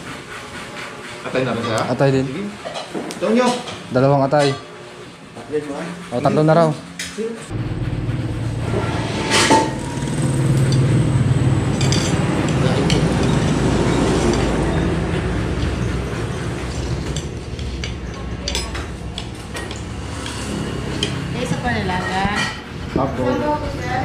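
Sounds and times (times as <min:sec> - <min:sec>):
low rumble: 0:07.5 - 0:18.1
dishes and glassware clinking: 0:16.7 - 0:21.2.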